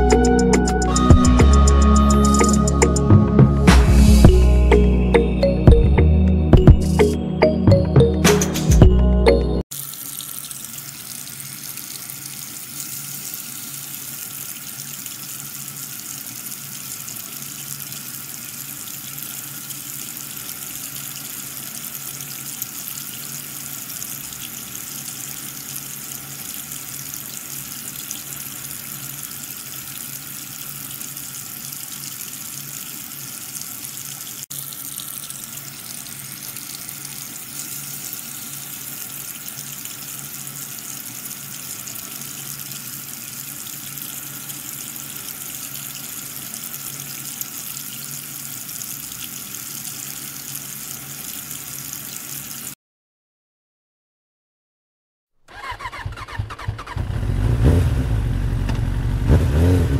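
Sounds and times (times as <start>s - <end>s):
water jet spraying and splashing: 9.7s - 52.8s.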